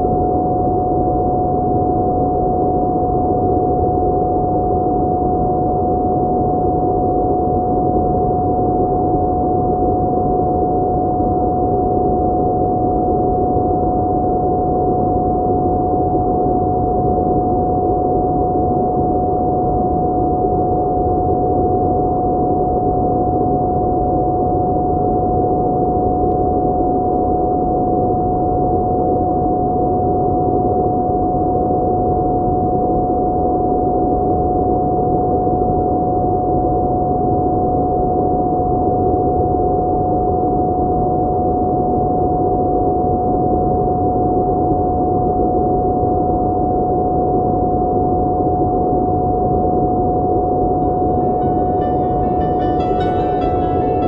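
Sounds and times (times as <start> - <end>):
high steady tone: 50.6 - 54.0.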